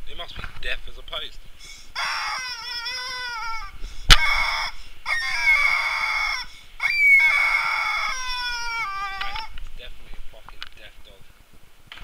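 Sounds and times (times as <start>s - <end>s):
rubber chicken toy squawking: 1.6s - 9.6s.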